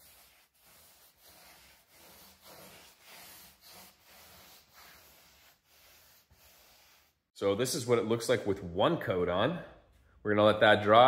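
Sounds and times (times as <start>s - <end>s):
paintbrush swishing on wood: 0.0s - 7.3s.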